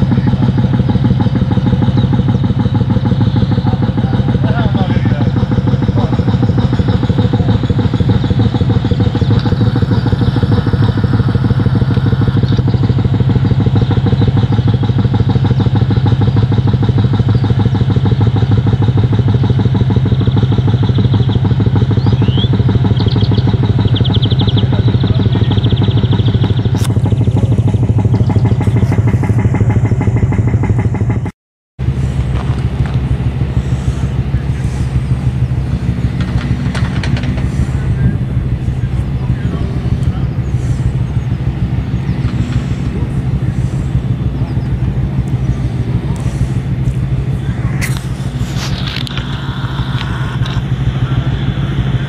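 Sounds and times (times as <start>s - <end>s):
digging machine engine throbbing: 0.0s - 52.0s
high chirps: 20.0s - 29.1s.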